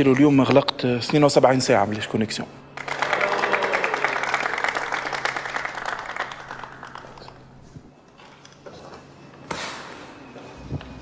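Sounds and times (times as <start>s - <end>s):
small group applauding: 2.8s - 7.6s.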